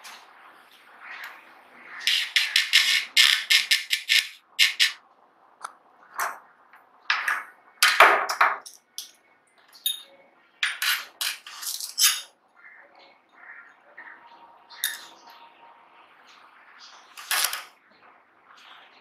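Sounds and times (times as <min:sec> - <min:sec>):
metal parts clinking and scraping: 0:09.7 - 0:12.3, 0:17.2 - 0:17.7.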